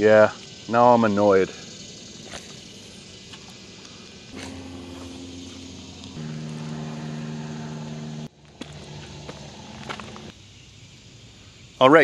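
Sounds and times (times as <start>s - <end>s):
engine running: 4.4s - 10.3s.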